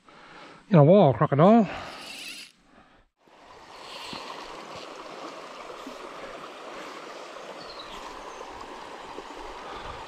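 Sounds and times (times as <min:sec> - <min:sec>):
creek water running over stones: 0:03.2 - 0:10.0.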